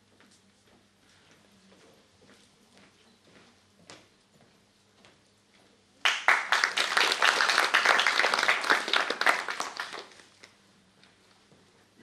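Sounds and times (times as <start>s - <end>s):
audience applauding: 6.0s - 10.3s.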